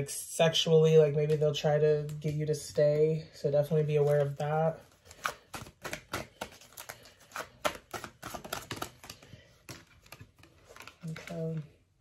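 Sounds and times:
cards being shuffled: 3.9s - 11.7s.

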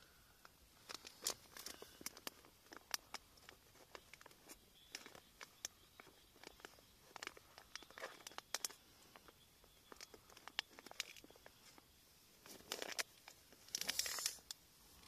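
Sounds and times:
plastic packaging crinkling: 0.8s - 11.8s, 12.4s - 14.6s
plastic rustling bursts: 12.4s - 14.4s.

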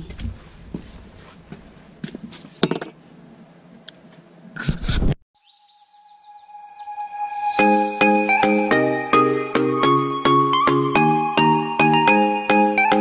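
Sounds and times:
falling chirp-like tones: 5.4s - 12.3s
music: 6.8s - 13.0s.

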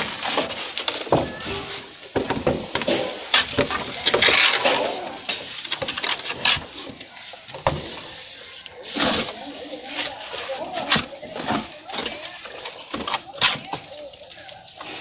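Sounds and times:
trowel scraping mortar: 2.8s - 13.9s.

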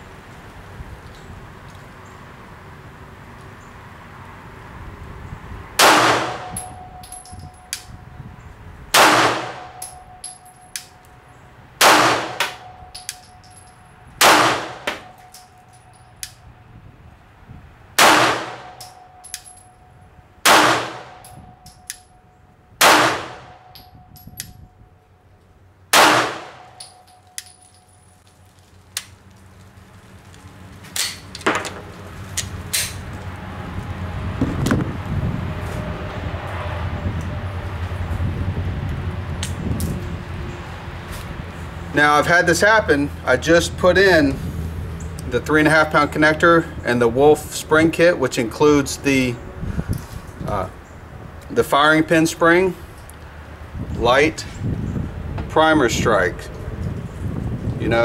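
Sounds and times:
pistol shots with metallic ring: 5.8s - 8.0s, 9.0s - 11.0s, 11.8s - 16.3s, 18.0s - 22.2s, 22.8s - 24.6s, 25.9s - 28.0s.

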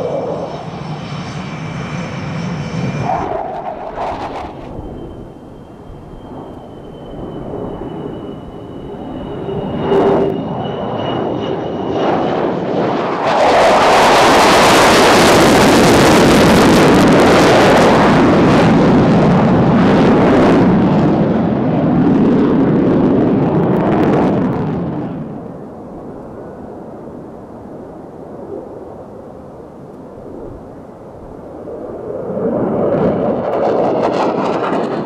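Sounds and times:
high turbine whine: 0.0s - 35.0s
jet engines roaring: 0.0s - 35.0s.

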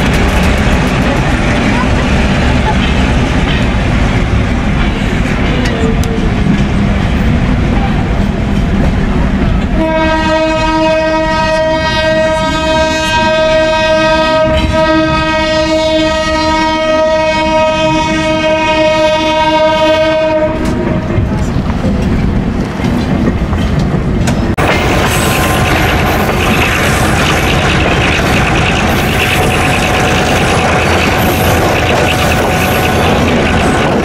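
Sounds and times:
moving train running noise: 0.0s - 34.0s
train horn blast: 9.8s - 21.1s.

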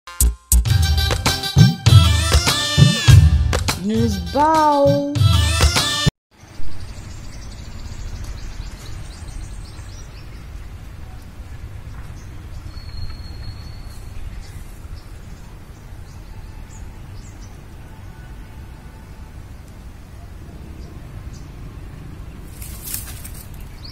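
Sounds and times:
wind rumbling on microphone: 6.5s - 23.9s.

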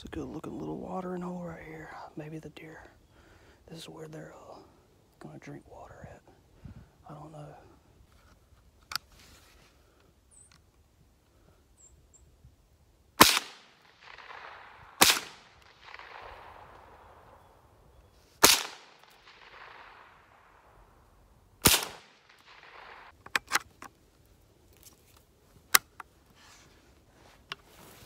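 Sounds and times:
rifle gunshots echoing: 13.2s - 21.0s, 21.6s - 23.2s.

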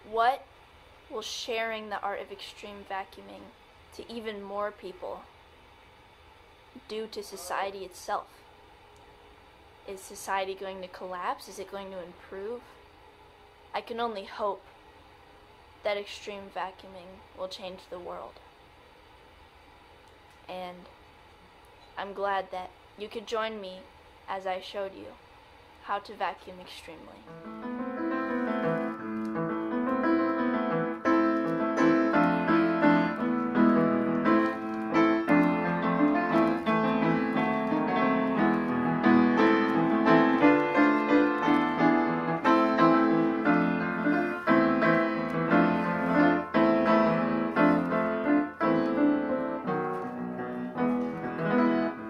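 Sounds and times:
piano piece: 27.3s - 52.0s.

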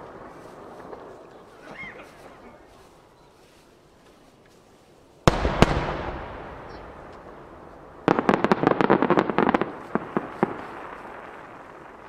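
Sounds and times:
crackle of small pops: 7.0s - 12.0s.

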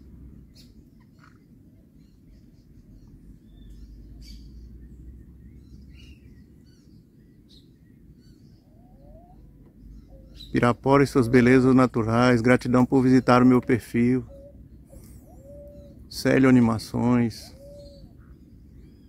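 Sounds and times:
faint bird chirps: 0.4s - 19.0s
rising bird call: 7.5s - 12.0s, 13.0s - 19.0s.

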